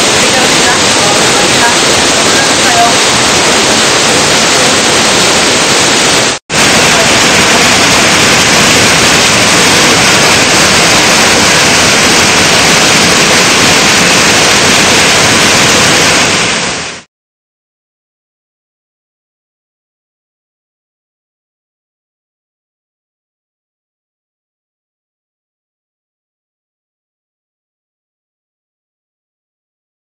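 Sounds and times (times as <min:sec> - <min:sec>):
waterfall rushing: 0:00.0 - 0:17.1.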